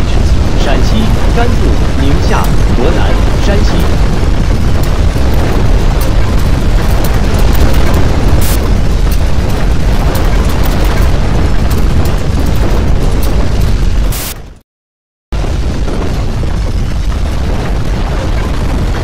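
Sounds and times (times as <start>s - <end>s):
sharp cracks: 0.0s - 14.4s
deep earthquake rumble: 0.0s - 14.6s, 15.3s - 19.0s.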